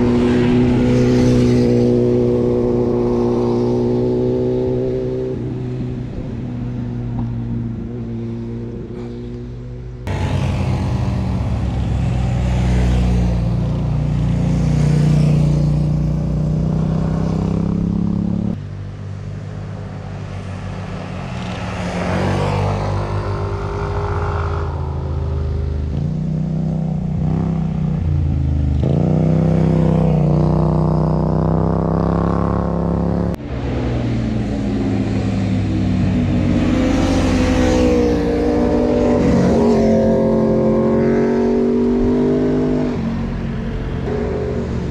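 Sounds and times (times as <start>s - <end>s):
motorcycles revving past: 0.0s - 6.4s, 10.1s - 18.6s, 20.0s - 44.9s.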